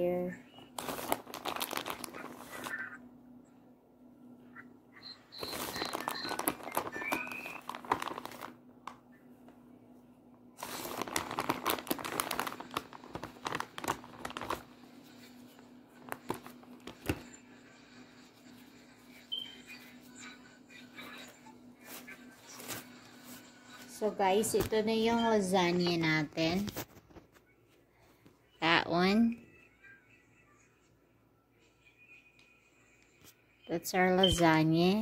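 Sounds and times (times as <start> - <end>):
plastic bag crinkling: 0.6 - 3.0, 5.3 - 9.0, 10.6 - 17.4
steady low hum: 2.4 - 34.9.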